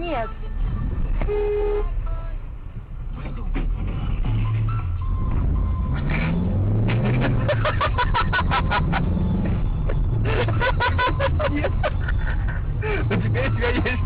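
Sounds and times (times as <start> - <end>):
car engine pulling away: 3.0 - 14.0.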